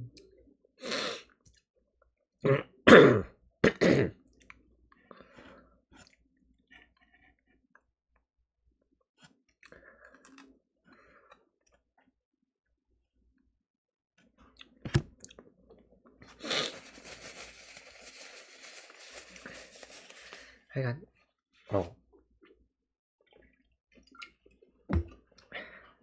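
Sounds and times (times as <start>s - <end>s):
man coughing: 2.5s - 4.2s
faint chewing: 4.3s - 7.9s, 9.2s - 12.1s.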